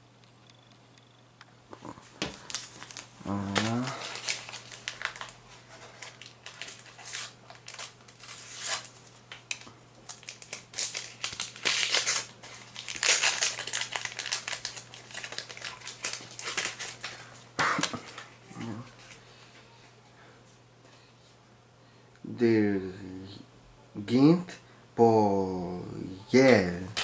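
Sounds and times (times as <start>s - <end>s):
faint low hum: 0.0s - 27.0s
paper and stickers rustling: 2.2s - 19.2s.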